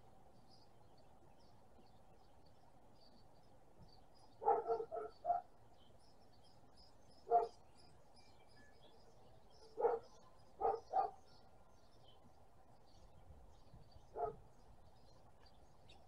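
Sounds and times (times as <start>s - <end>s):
faint bird chirps: 0.0s - 16.0s
dog barking: 4.4s - 5.5s, 7.3s - 7.6s, 9.7s - 11.2s, 14.2s - 14.4s.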